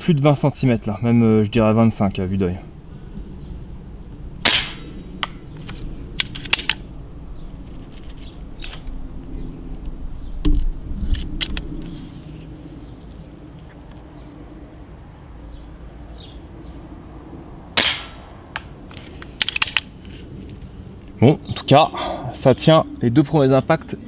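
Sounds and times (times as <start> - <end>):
suppressed air rifle shots: 4.4 - 5.4, 17.8 - 18.3.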